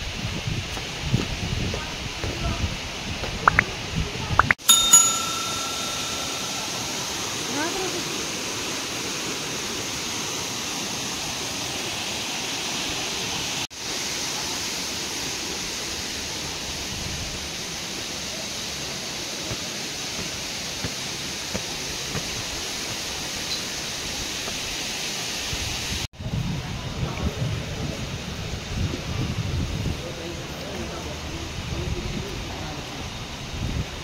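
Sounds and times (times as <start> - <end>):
gusty wind noise: 0.0 - 4.6, 25.5 - 30.5, 31.4 - 34.0.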